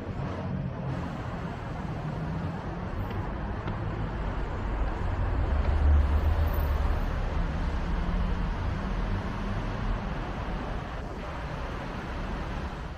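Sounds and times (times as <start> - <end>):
urban traffic noise: 0.0 - 12.9.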